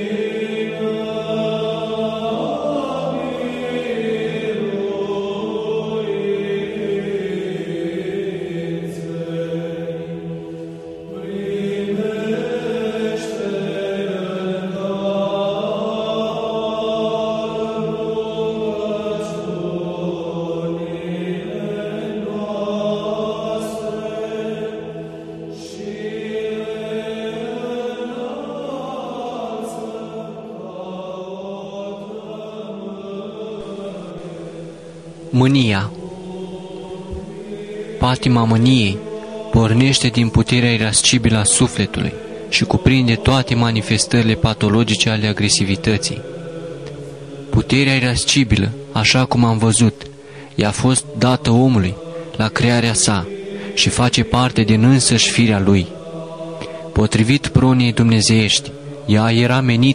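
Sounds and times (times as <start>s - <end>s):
choir chanting: 0.0s - 59.9s.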